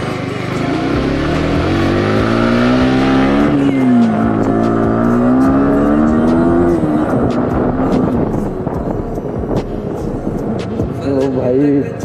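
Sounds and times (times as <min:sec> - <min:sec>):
motorcycle engine revving hard: 0:00.0 - 0:08.3.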